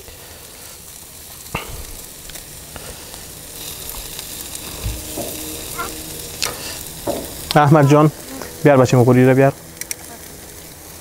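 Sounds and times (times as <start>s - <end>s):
chicken sizzling: 0.0s - 11.0s.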